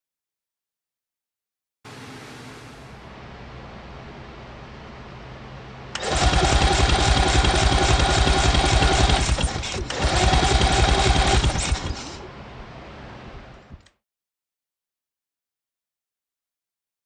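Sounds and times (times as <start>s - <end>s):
electric starter cranking engine: 6.0s - 12.2s.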